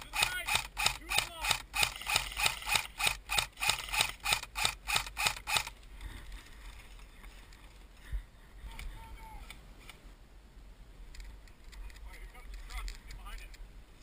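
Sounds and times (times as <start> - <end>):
sharp mechanical click: 0.0 - 5.7.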